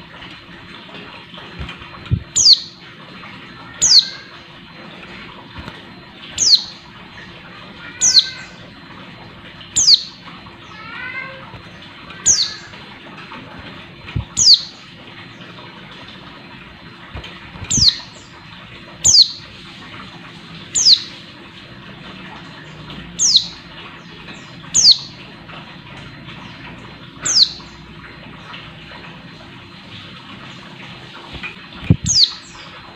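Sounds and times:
bird giving sharp high calls: 2.4 - 2.7, 6.4 - 6.8, 7.9 - 8.6, 9.8 - 10.2, 12.3 - 12.7, 14.4 - 14.7.

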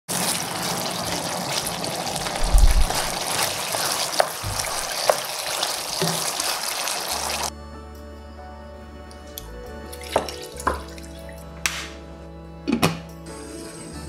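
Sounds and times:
spoon stirring thick sauce: 0.2 - 7.0.

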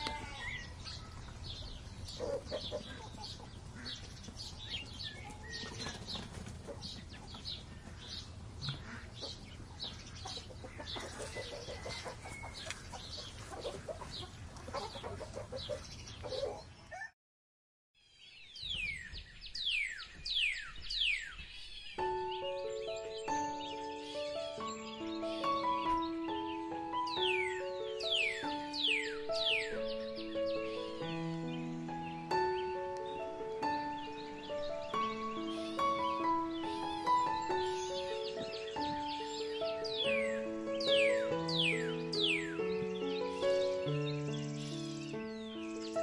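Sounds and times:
birds chirping: 0.0 - 17.1, 18.0 - 46.0
chickens clucking: 0.0 - 17.1.

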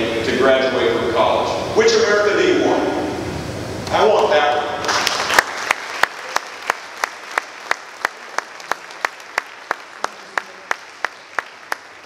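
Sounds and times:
person clapping: 4.2 - 12.0
faint crowd noise: 8.0 - 12.0.

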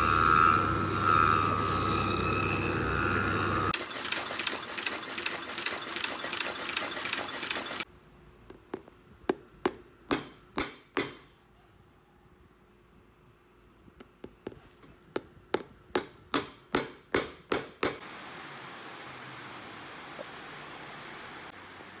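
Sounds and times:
sanding wheel grinding sole: 0.0 - 7.8
stitching machine sewing: 0.0 - 7.9.

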